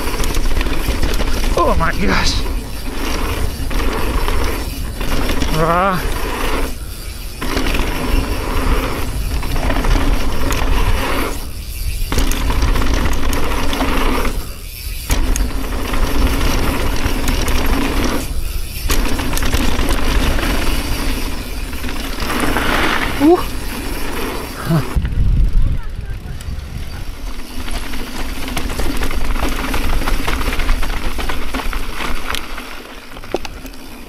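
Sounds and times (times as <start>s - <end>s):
bike rattling: 0.0s - 34.0s
tyres rolling over dirt: 0.0s - 34.0s
wind on microphone: 0.8s - 12.9s, 24.6s - 27.7s.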